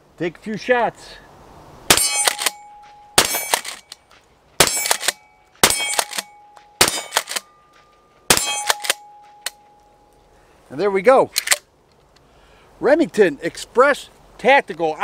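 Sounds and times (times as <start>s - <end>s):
shotgun shots: 1.9s - 3.8s, 4.6s - 7.5s, 8.3s - 9.1s
steel target ringing: 1.9s - 3.9s, 4.6s - 10.0s.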